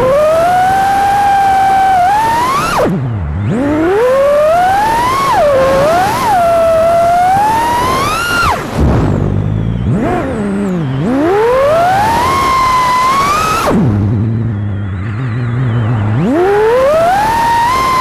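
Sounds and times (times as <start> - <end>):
drone motors whining: 0.0 - 18.0.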